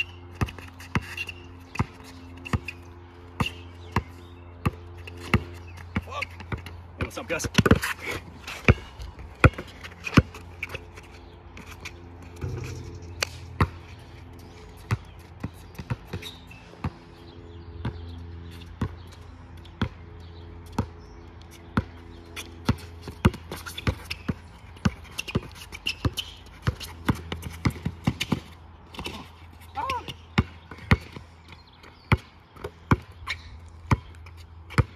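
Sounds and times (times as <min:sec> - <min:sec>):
steady low hum: 0:00.0 - 0:23.6
basketball bouncing on hard court: 0:00.3 - 0:02.7, 0:03.4 - 0:07.9, 0:08.6 - 0:10.4, 0:12.4 - 0:13.9, 0:14.7 - 0:17.0, 0:18.8 - 0:19.1, 0:19.8 - 0:20.0, 0:20.6 - 0:21.0, 0:21.8 - 0:29.2, 0:29.8 - 0:31.2, 0:32.1 - 0:33.1, 0:33.9 - 0:34.9.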